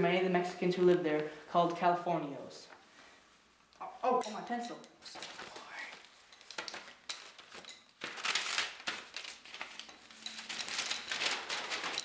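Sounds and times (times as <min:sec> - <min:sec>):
rustling and crinkling: 0:03.7 - 0:12.0.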